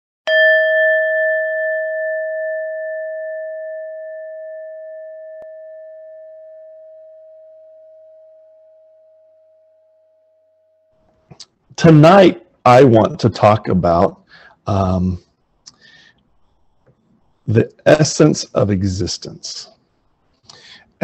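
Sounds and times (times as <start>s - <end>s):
singing bowl ringing: 0.3s - 11.0s.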